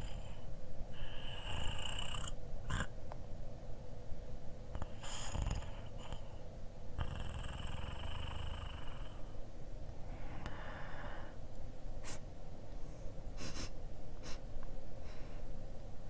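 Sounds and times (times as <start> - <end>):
breathy sniffs and snorts: 12.0 - 12.2.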